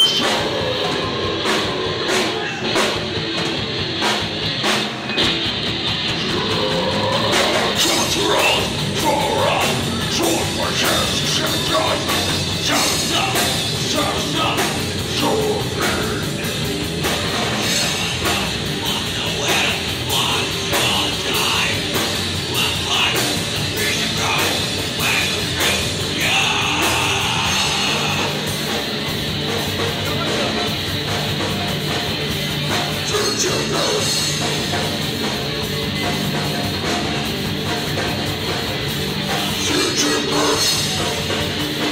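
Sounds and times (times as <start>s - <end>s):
singer shouting: 0.0s - 3.0s, 6.2s - 16.6s, 17.6s - 28.7s, 39.5s - 41.2s
bass guitar: 0.0s - 41.9s
distorted electric guitars: 0.0s - 41.9s
drums: 0.0s - 41.9s.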